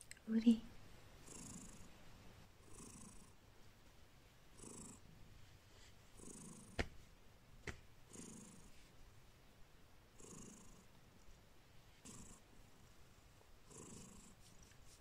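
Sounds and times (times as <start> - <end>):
cat purring softly: 1.2 - 3.6, 4.5 - 6.8, 8.1 - 8.9, 10.1 - 11.3, 11.9 - 15.0.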